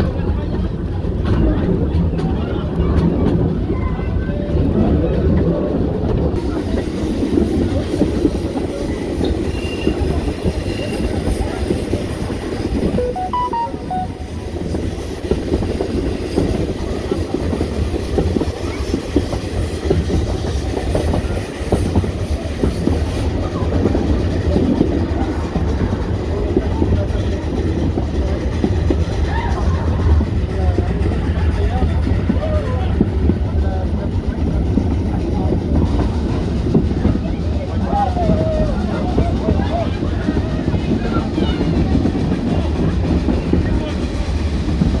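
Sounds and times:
wheels clickety-clack: 0:00.0 - 0:13.0, 0:14.9 - 0:45.0
train carriages rumbling: 0:00.0 - 0:45.0.

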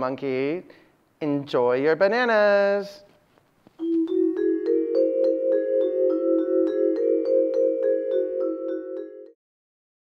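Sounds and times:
mallet percussion music sting: 0:03.8 - 0:09.4.

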